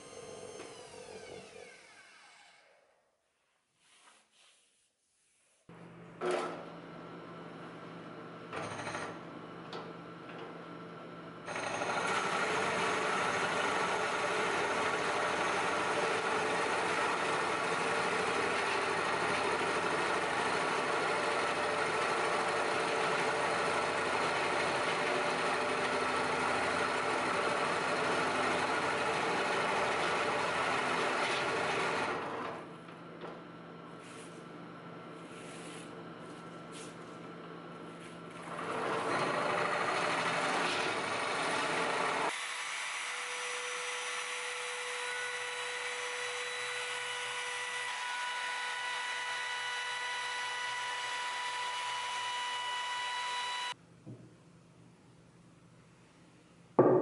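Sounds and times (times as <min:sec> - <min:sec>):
drill bit boring into wood: 0:00.0 - 0:02.7, 0:11.5 - 0:32.5, 0:38.4 - 0:53.8
drill press motor running: 0:00.0 - 0:02.7, 0:11.4 - 0:33.0, 0:38.3 - 0:53.8
knock: 0:54.0 - 0:54.3, 0:56.8 - 0:57.0.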